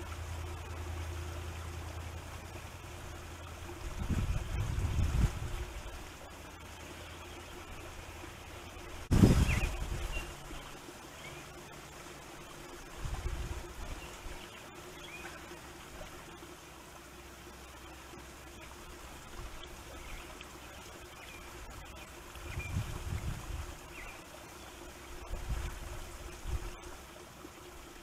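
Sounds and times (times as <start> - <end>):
faint hiss of wind: 0.0 - 28.0
wind buffeting microphone: 3.8 - 6.1, 9.0 - 10.4, 12.9 - 14.0, 22.4 - 23.9.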